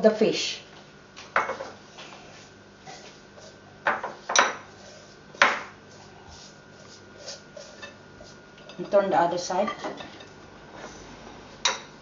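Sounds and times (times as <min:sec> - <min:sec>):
hands rubbing salt into fish: 0:05.9 - 0:08.4.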